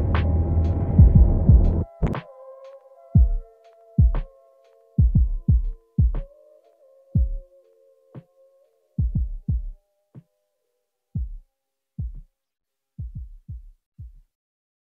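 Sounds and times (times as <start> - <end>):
deep decaying thumps in music: 0.0 - 2.2.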